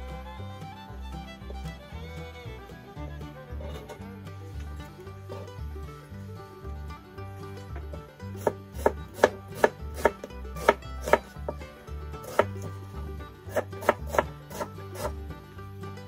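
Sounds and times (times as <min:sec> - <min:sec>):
background music: 0:00.0 - 0:16.0
knife chopping on cutting board: 0:08.4 - 0:11.4, 0:12.2 - 0:12.5, 0:13.5 - 0:15.2.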